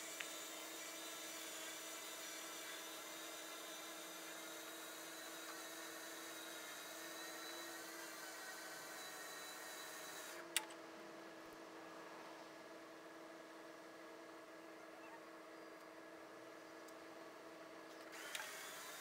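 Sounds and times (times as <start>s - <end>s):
electric winch motor whining: 0.0s - 10.4s, 18.1s - 19.0s
electric winch whining: 18.1s - 19.0s.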